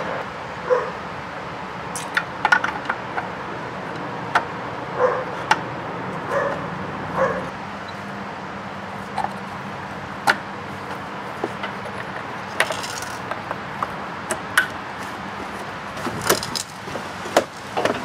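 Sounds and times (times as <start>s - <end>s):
dog yipping: 0.7s - 1.0s, 5.0s - 5.3s, 6.3s - 6.6s, 7.2s - 7.5s.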